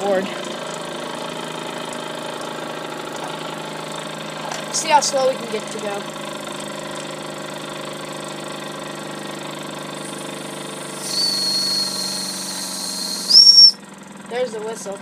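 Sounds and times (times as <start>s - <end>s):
toy steam engine running: 10.0s - 13.7s
high steam whistle: 10.9s - 13.8s.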